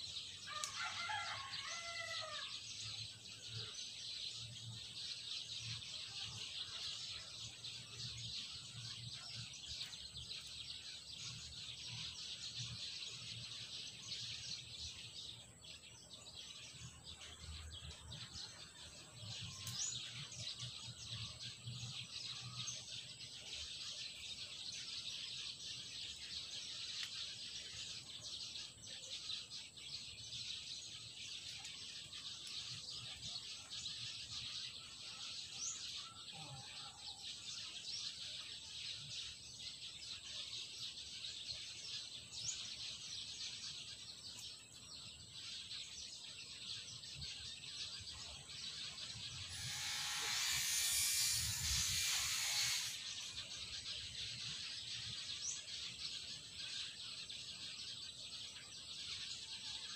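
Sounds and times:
birds chirping: 0:00.0 - 0:59.9
high-pitched hiss: 0:49.5 - 0:53.4.

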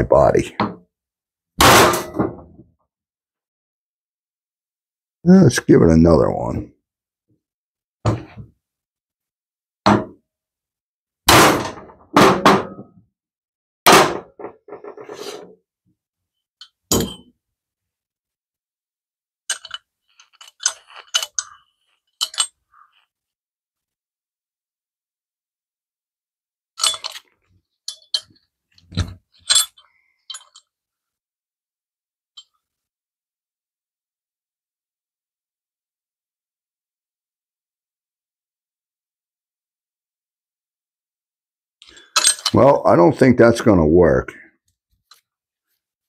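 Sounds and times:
metal clinks and rattles: 0:19.5 - 0:22.6, 0:26.8 - 0:30.7, 0:41.8 - 0:42.6.

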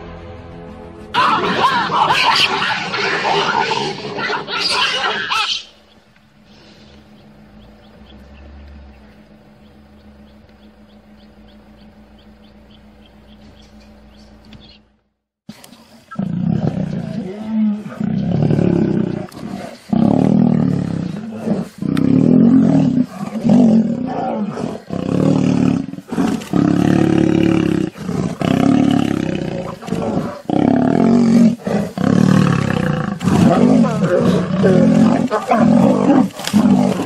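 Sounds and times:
lions roaring: 0:01.2 - 0:05.7, 0:16.1 - 0:37.0.

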